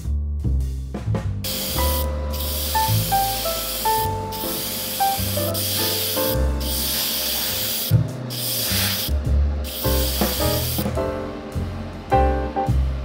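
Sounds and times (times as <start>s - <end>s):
background music: 0.0s - 13.0s
paint spray hissing: 1.5s - 11.0s.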